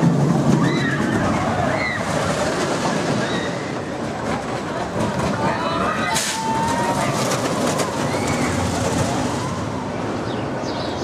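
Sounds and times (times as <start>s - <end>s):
roller coaster rushing on track: 0.0s - 11.0s.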